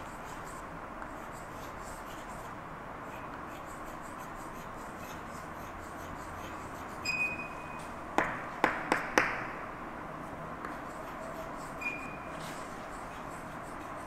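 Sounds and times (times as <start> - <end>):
chalk scratching on blackboard: 0.0 - 7.3, 10.7 - 14.0.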